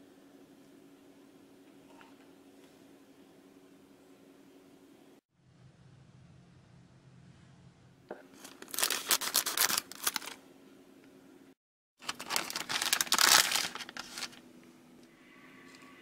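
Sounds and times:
plastic bag crinkling and tearing: 8.4s - 10.4s, 12.0s - 14.4s.

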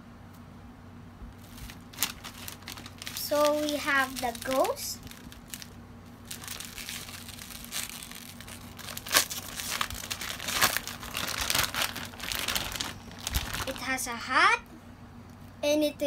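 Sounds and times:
plastic bag crinkling: 1.4s - 14.1s.

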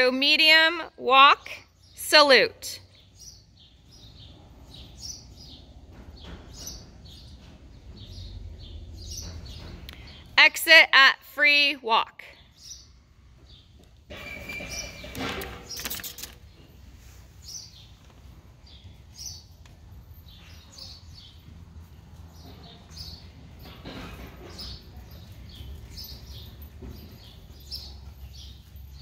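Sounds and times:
small birds chirping: 1.6s - 10.8s, 12.3s - 14.0s, 14.6s - 29.0s.

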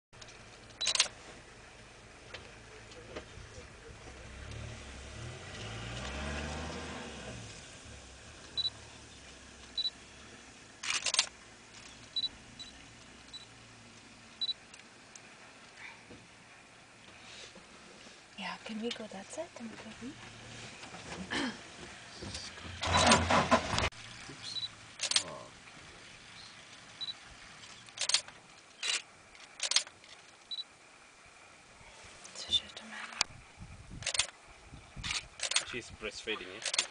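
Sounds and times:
camera shutter clicks: 0.8s - 1.1s, 10.8s - 11.3s, 25.0s - 25.3s, 27.9s - 30.0s, 34.0s - 34.4s, 35.0s - 35.7s, 36.6s - 36.9s
high electronic camera beeps: 0.8s - 1.1s, 12.2s - 13.5s, 14.4s - 14.6s.

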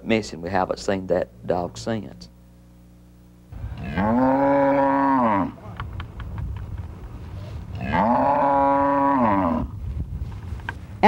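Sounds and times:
cow mooing: 3.6s - 5.7s, 7.7s - 9.8s.

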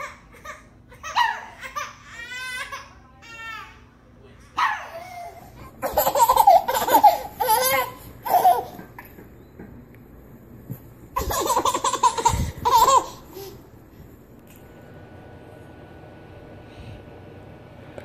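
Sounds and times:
baby laughing: 0.0s - 3.0s, 4.9s - 9.2s, 11.2s - 13.6s.

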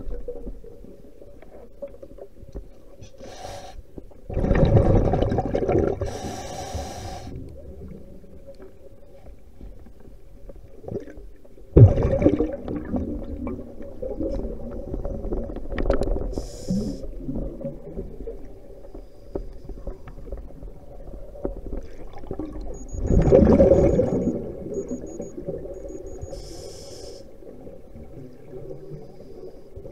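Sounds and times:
faint steady hum: 0.0s - 29.9s
underwater bubbles gurgling: 0.0s - 29.9s.

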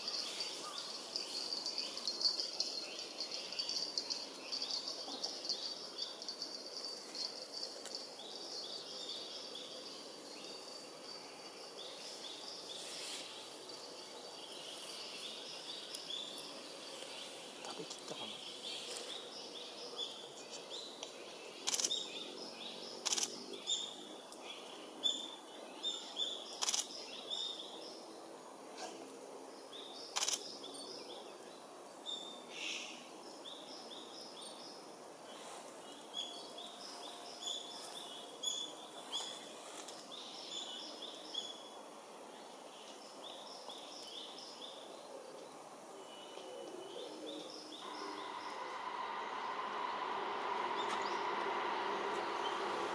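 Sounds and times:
small birds chirping and singing: 29.6s - 48.5s.

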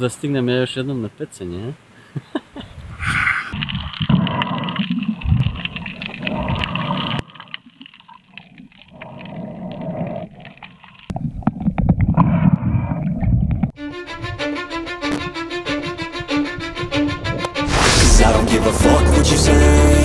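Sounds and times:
underwater water noise: 3.1s - 13.7s.

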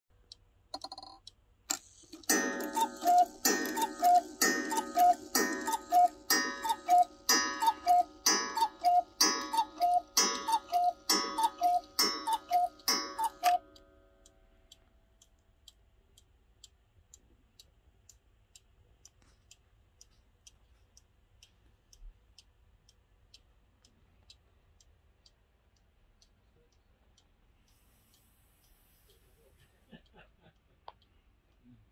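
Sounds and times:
clock ticking: 0.1s - 31.9s
cuckoo clock call: 1.7s - 14.0s.

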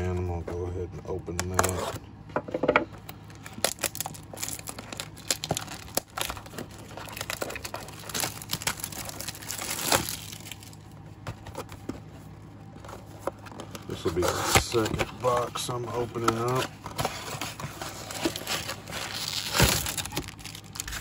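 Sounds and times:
plastic shrink wrap crinkling: 3.3s - 10.9s, 13.2s - 21.0s.

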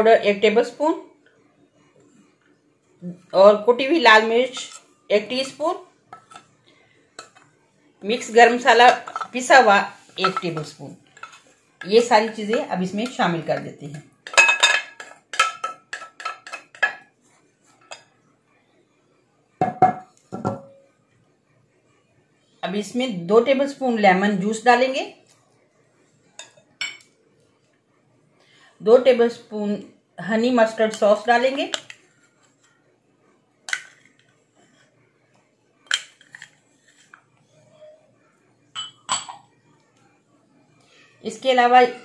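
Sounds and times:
glass clinking against bowl: 38.7s - 39.5s.

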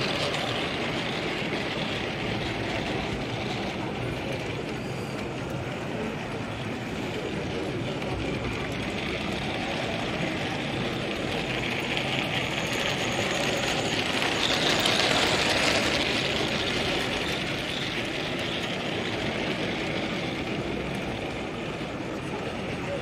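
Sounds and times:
model train running past: 0.0s - 23.0s
steady background noise: 0.0s - 23.0s.

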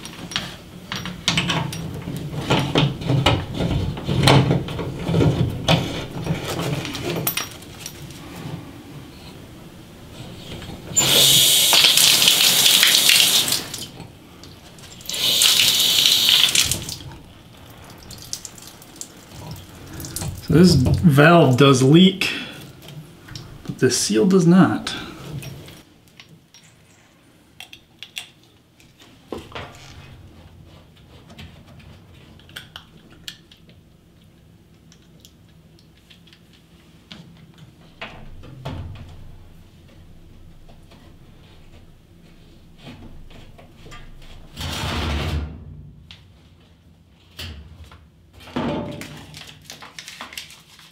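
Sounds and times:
water rushing through valve: 10.9s - 14.0s, 15.0s - 21.1s.

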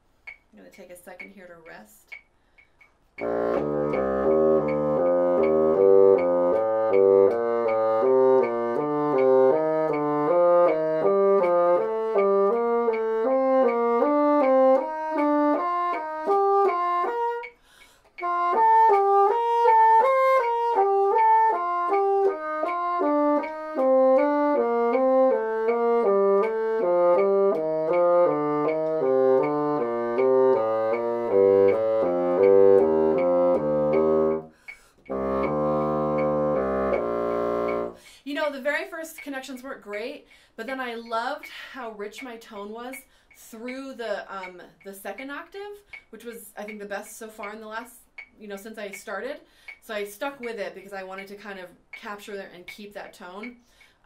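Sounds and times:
bassoon playing a scale: 3.2s - 38.0s.

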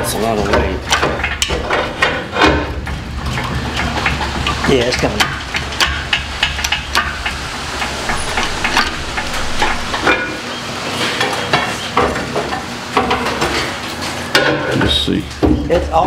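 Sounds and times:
low rumble: 4.2s - 10.6s.

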